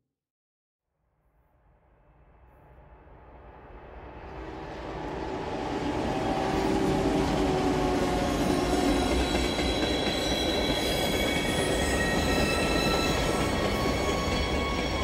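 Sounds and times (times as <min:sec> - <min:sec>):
train rolling on rails: 0:03.4 - 0:15.0
train wheels squealing: 0:04.3 - 0:15.0.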